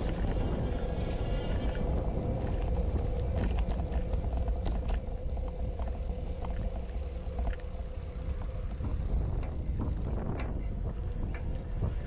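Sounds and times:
bike clicks and rattles: 0.0s - 6.6s, 9.3s - 12.0s
wind buffeting microphone: 0.0s - 12.0s.

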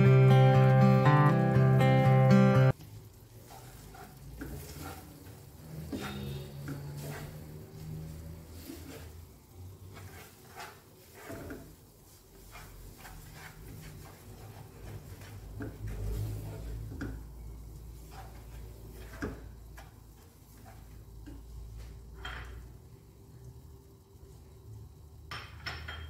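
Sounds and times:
spatula scraping a pan: 2.8s - 22.7s.

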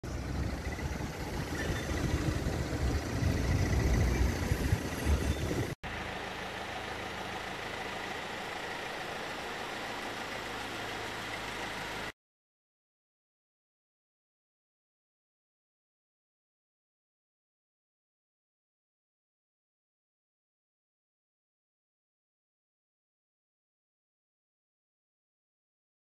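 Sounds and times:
cars idling hum: 0.0s - 12.2s
street traffic rumble: 0.0s - 12.2s.

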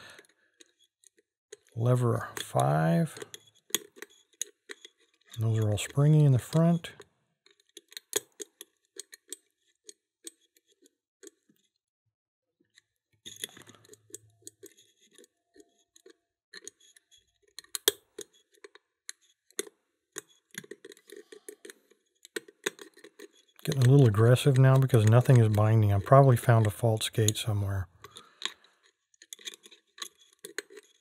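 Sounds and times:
lock pick metallic clicks: 16.0s - 31.0s.

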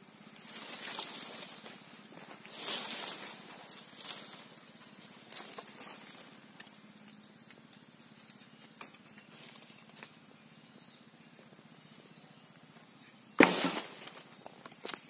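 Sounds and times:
twigs crackling: 0.3s - 7.2s
branch crashing onto brush: 13.4s - 14.2s.

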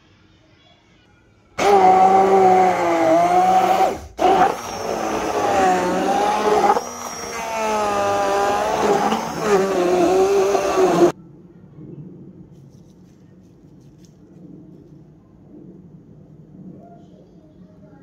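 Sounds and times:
stick blender motor whine: 1.6s - 11.2s.

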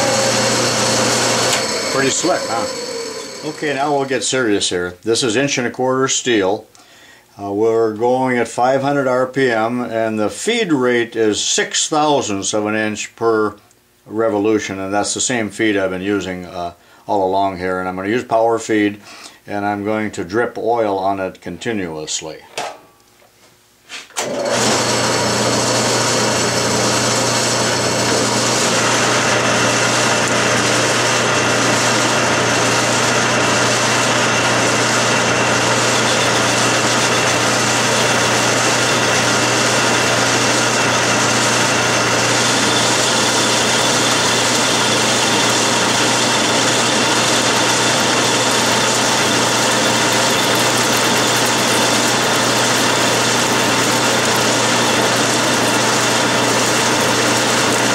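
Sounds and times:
constant motor hum: 0.0s - 4.3s
lathe parting tool cutting steel: 0.0s - 4.6s, 24.2s - 57.9s.

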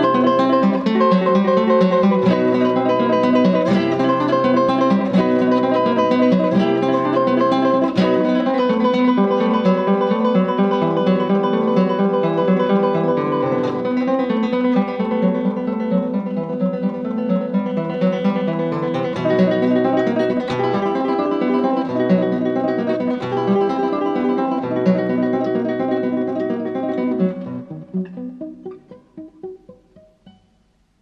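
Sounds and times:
acoustic guitar plucked notes: 0.0s - 31.0s.

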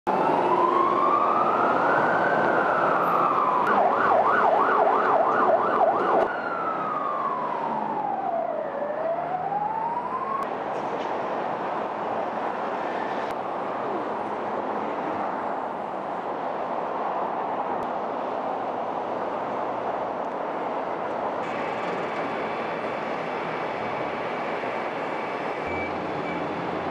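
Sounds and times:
ambulance siren wailing and yelping: 0.1s - 10.4s
fainter siren: 0.1s - 10.5s
motorway traffic rushing: 0.1s - 26.9s.

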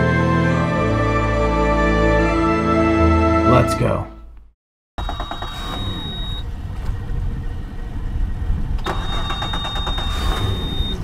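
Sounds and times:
thin high steady beep: 5.0s - 6.4s, 8.9s - 11.0s.

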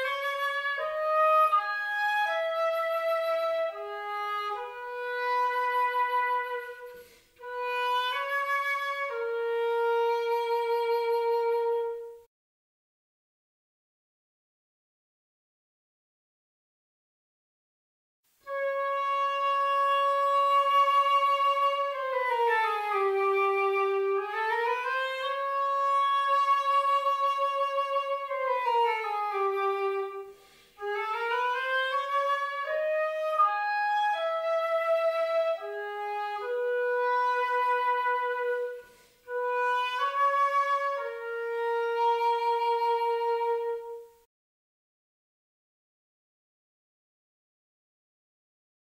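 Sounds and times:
solo woodwind melody: 0.0s - 12.3s, 18.4s - 44.3s.

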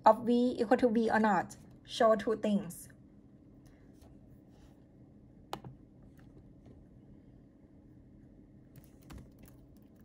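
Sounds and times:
faint room hum: 0.0s - 10.0s
laptop keyboard keystrokes: 8.7s - 10.0s.

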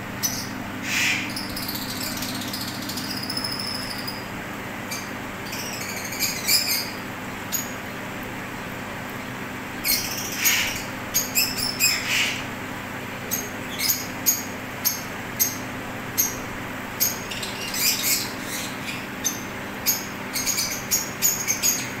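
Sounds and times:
steady low hum: 0.0s - 22.0s
lovebirds chirping: 0.2s - 4.3s, 13.3s - 22.0s.

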